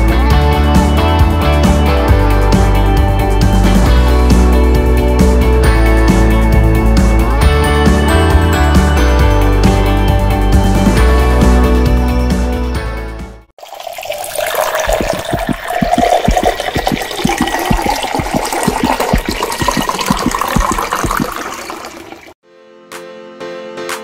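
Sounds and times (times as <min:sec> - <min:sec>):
music: 0:00.0 - 0:13.5, 0:22.4 - 0:24.0
water pouring into a pot: 0:13.6 - 0:22.4.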